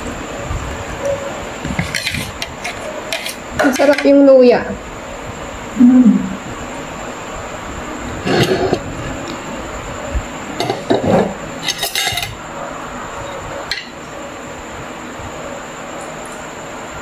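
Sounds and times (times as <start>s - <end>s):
cutlery clinking on dishes: 10.6s - 12.4s.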